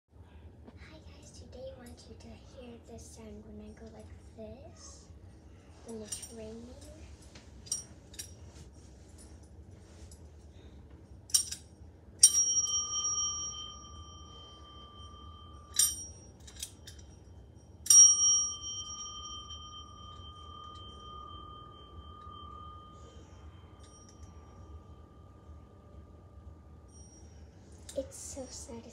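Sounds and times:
small metal bell ringing: 0:05.8 - 0:07.1, 0:07.7 - 0:08.6, 0:11.3 - 0:28.1.

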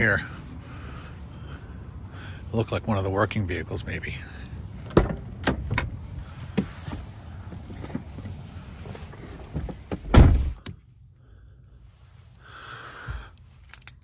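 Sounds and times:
traffic hum: 0:00.0 - 0:14.0
van door slamming: 0:04.9 - 0:06.0, 0:09.8 - 0:10.6.

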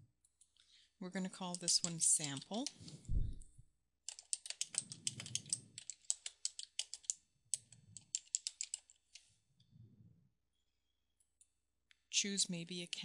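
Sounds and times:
typing on computer keyboard: 0:01.5 - 0:02.8, 0:04.1 - 0:09.2.

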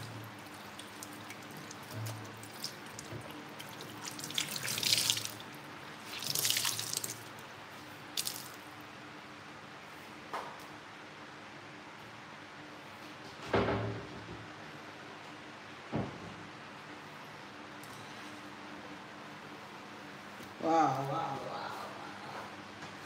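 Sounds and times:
cloth rinsed and squeezed: 0:00.0 - 0:07.4, 0:08.1 - 0:08.7.

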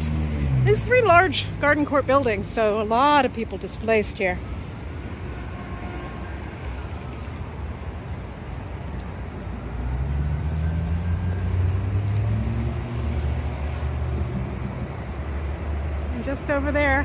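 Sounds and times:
vehicle engine passing: 0:00.0 - 0:02.2, 0:09.8 - 0:17.0
background traffic noise: 0:00.0 - 0:17.0.

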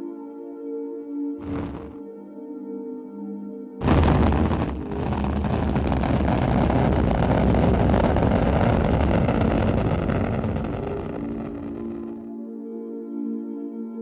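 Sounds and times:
rocket engine rumbling: 0:01.4 - 0:02.0, 0:03.8 - 0:12.3.

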